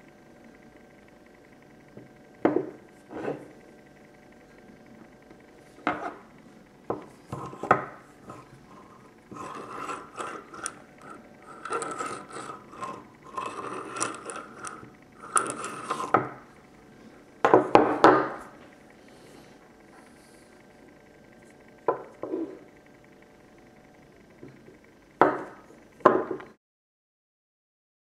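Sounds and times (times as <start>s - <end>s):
rasping scraping metal: 7.3s - 16.4s.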